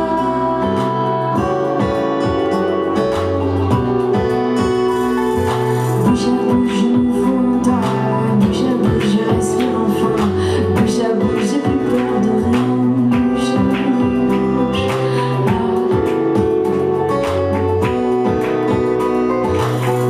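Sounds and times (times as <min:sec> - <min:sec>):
woman singing: 0:00.0 - 0:03.0, 0:05.9 - 0:17.6
acoustic guitar strumming: 0:00.0 - 0:20.0.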